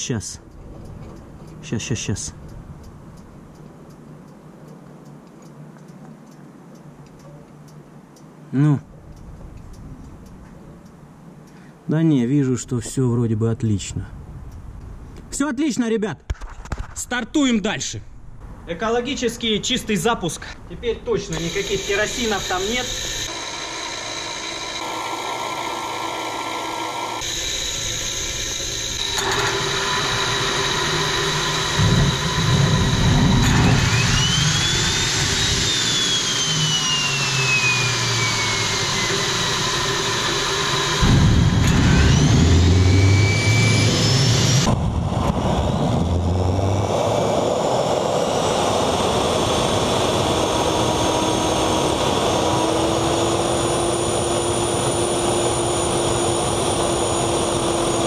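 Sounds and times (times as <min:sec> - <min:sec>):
jet engine combustion rumble: 0:18.4 - 0:23.3, 0:30.0 - 0:58.0
turbine whine: 0:18.4 - 0:58.0.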